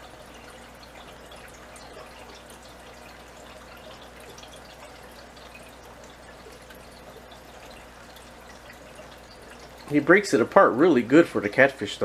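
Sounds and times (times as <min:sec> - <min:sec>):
aquarium water trickling: 0:00.0 - 0:12.0.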